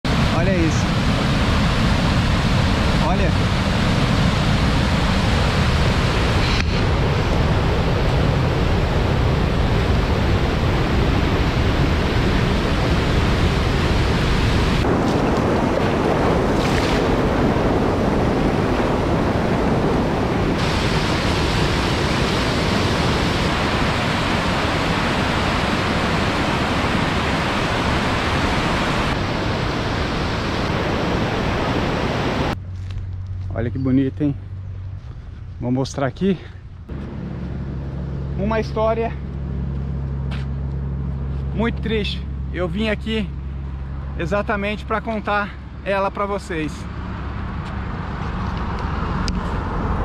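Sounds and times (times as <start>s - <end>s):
river rushing over a weir: 0.1s - 32.6s.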